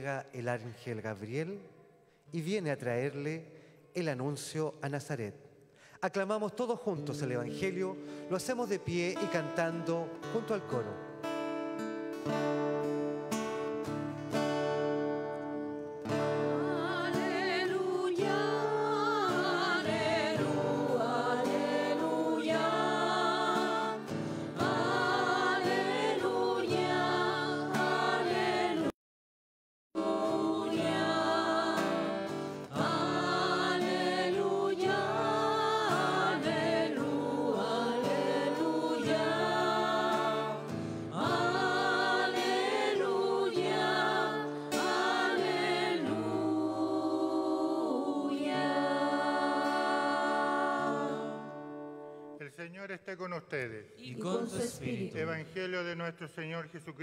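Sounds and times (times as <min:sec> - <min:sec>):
guitar accompaniment: 0:07.0 - 0:28.9, 0:30.0 - 0:52.4, 0:54.1 - 0:55.3
church choir singing: 0:15.3 - 0:28.9, 0:30.0 - 0:52.3, 0:54.0 - 0:55.6.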